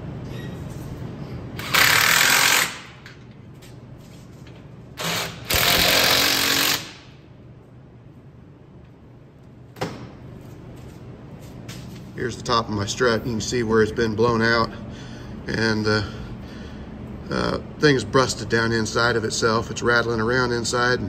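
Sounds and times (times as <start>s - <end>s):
impact wrench hammering: 1.6s - 3.1s, 5.0s - 7.1s.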